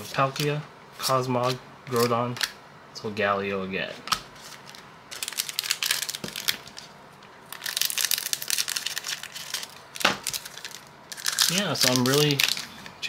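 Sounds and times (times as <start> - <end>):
foil wrapper crinkling: 4.4 - 12.8.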